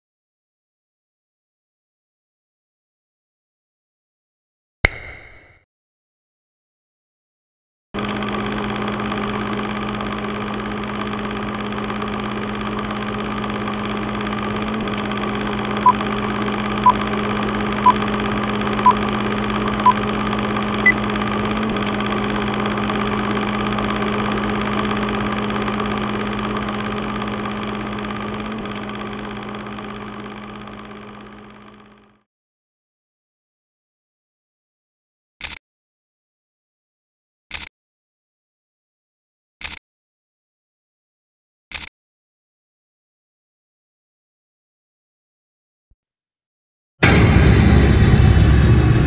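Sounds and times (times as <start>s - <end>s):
film projector running: 8.0s - 32.2s.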